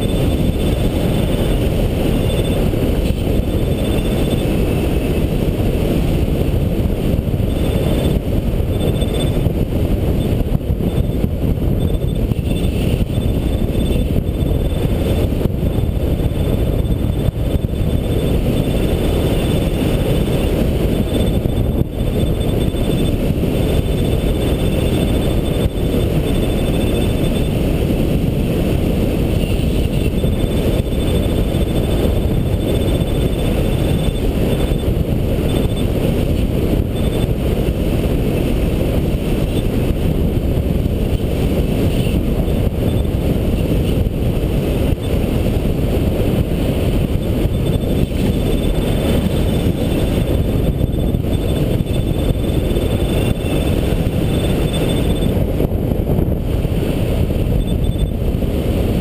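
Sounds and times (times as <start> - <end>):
faint high beeping: 0.0 - 2.7, 3.4 - 4.5, 7.5 - 9.5, 11.8 - 14.8, 15.7 - 27.6, 29.4 - 35.9, 47.4 - 55.3, 57.6 - 58.2
wind rushing over microphone: 0.0 - 59.0.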